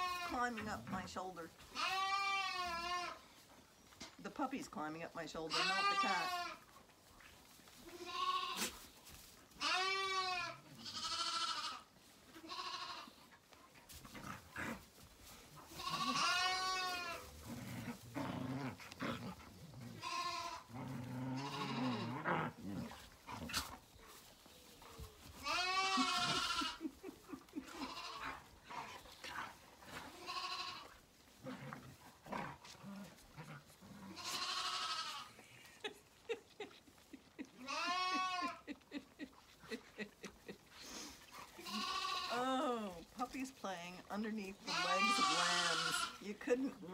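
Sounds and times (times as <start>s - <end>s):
lambs bleating: 0.0s - 1.1s, 1.7s - 3.2s, 5.4s - 6.7s, 7.8s - 8.8s, 9.5s - 13.2s, 15.6s - 18.4s, 19.8s - 24.1s, 25.3s - 29.0s, 29.9s - 31.7s, 32.3s - 35.4s, 37.6s - 39.0s, 40.2s - 42.5s, 44.0s - 46.6s.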